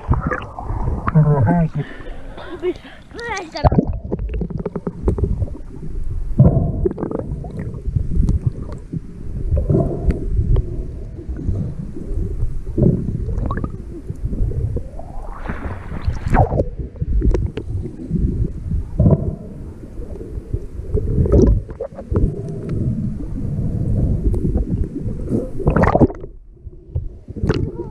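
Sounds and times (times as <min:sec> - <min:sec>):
underwater water movement rumbling: 0:00.0 - 0:27.9
rising swish: 0:15.0 - 0:16.8.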